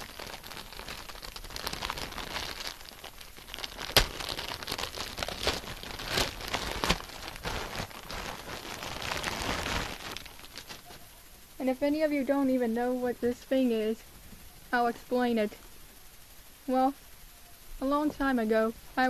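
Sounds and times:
plastic wrapping crinkling: 0.0s - 11.4s.

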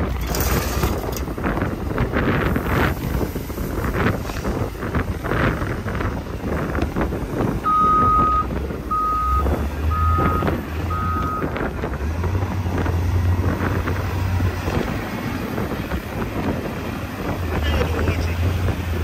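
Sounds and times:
truck engine rumble: 0.0s - 19.0s
truck reversing alarm beeping: 7.6s - 11.6s.

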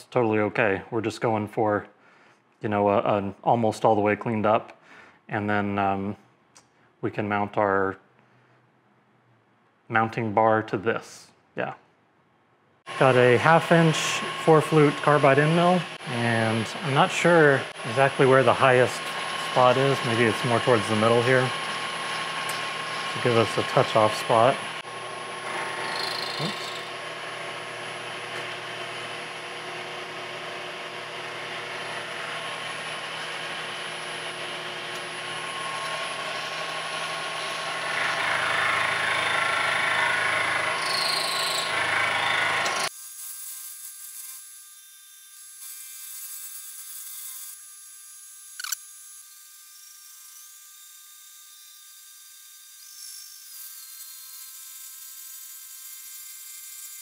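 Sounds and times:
high whir: 12.9s - 42.9s
milling machine cutting metal: 12.9s - 42.9s.

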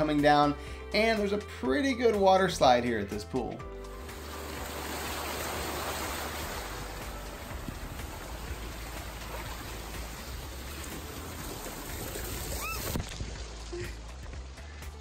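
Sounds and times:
water rushing down slide: 3.9s - 14.6s
short high squeak: 12.5s - 13.0s.

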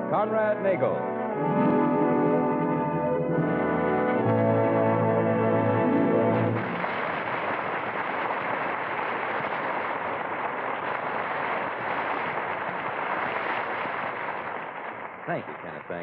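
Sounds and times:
audience applauding: 5.7s - 16.0s.

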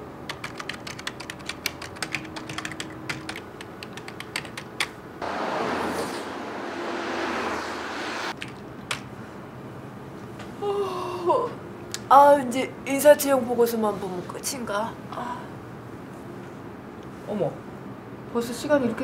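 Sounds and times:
typing on computer keyboard: 0.3s - 5.0s
steady rushing noise: 5.2s - 8.4s.

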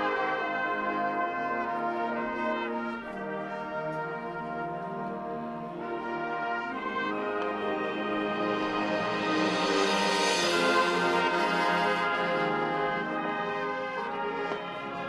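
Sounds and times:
brass section playing chords: 0.0s - 15.0s.

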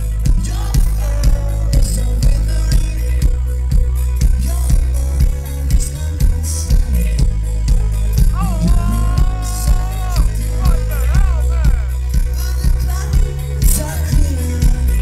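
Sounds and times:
heavy bass: 0.0s - 15.0s
live band playing: 0.0s - 15.0s
steady drum beat: 0.0s - 15.0s
high singing voice: 8.3s - 14.5s.

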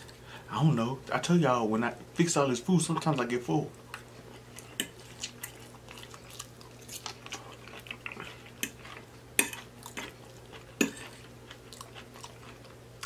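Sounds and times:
soft chewing: 3.0s - 13.0s.

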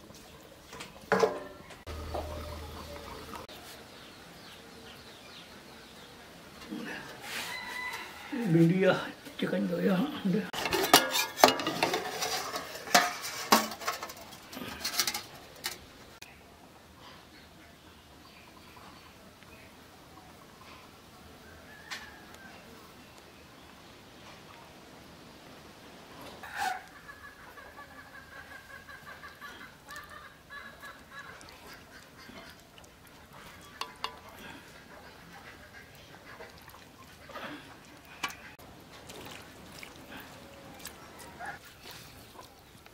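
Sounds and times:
steel cookware clinking: 1.1s - 1.6s, 10.6s - 15.9s, 33.6s - 34.4s
waterfowl calling: 1.9s - 3.5s, 26.4s - 38.6s.

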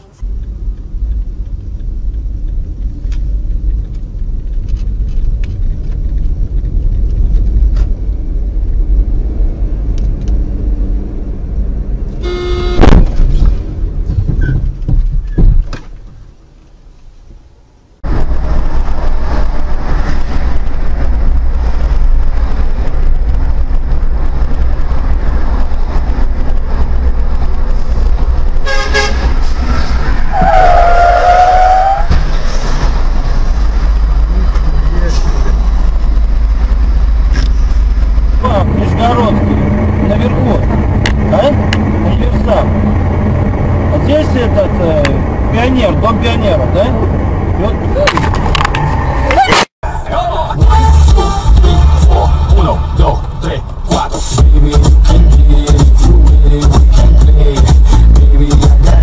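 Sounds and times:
car engine and road rumble: 0.0s - 59.0s
car horn: 12.2s - 13.2s, 28.6s - 29.6s, 30.3s - 32.2s, 50.6s - 53.2s
knock: 14.2s - 15.8s.

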